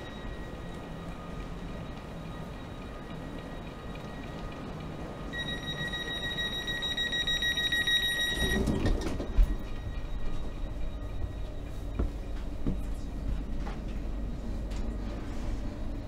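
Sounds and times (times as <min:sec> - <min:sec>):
station platform ambience: 0:00.0 - 0:16.0
footsteps thudding into train: 0:08.4 - 0:15.6.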